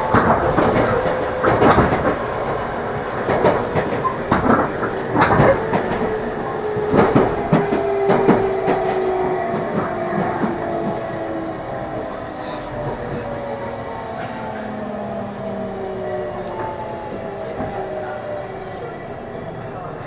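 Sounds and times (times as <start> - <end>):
wheels clacking over rail joints: 0.0 - 19.0.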